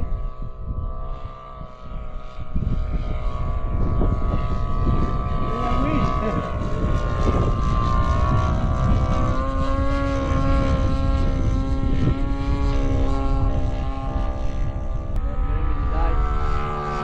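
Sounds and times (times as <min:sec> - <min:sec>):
low rumble: 0:00.0 - 0:17.0
model airplane motor whine: 0:00.0 - 0:17.0.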